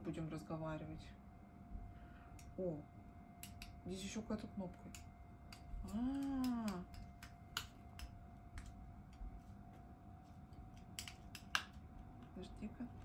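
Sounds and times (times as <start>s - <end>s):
person humming: 5.8s - 7.0s.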